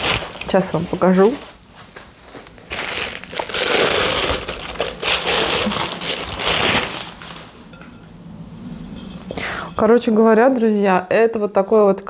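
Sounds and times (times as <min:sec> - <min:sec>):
wrapping crinkling and rustling: 0:00.0 - 0:07.8.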